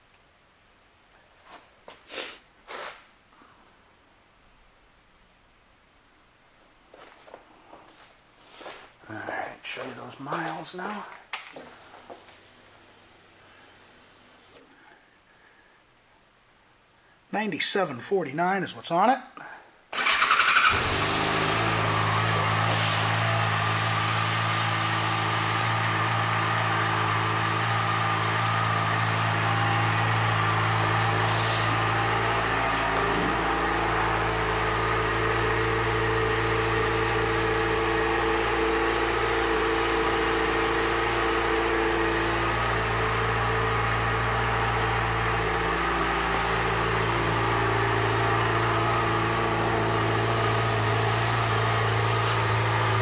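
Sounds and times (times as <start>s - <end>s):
motorcycle engine idling: 20.0s - 53.0s.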